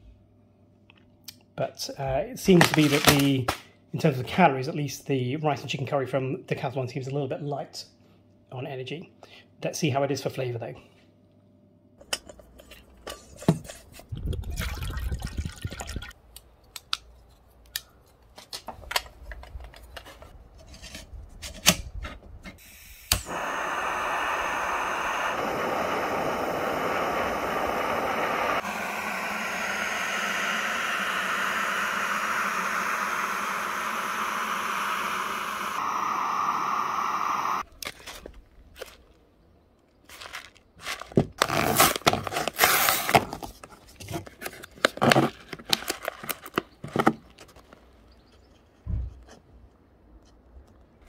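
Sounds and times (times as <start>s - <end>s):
gas burner hissing: 22.6s - 37.7s
sharp ignition click: 22.8s - 23.6s.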